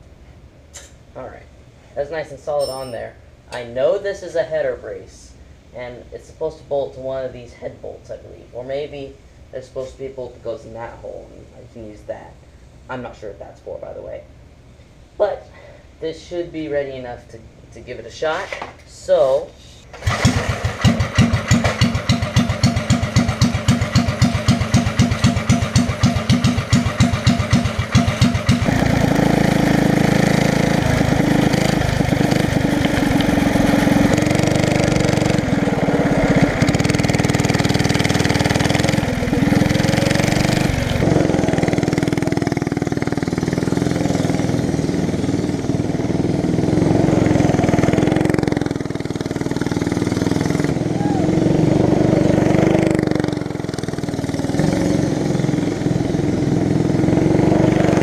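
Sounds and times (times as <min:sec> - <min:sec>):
go-kart engine running: 0:20.0 - 0:58.0.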